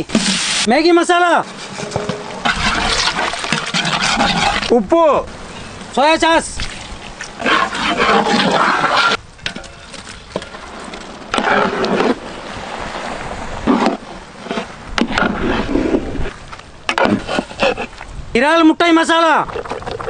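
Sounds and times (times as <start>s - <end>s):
wet squelching food mixing: 1.4s - 4.7s, 6.5s - 9.2s.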